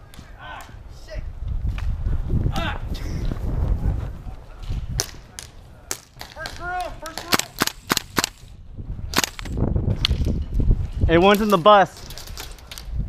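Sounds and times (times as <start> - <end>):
airsoft gun shots: 5.9 - 8.5, 9.1 - 9.6.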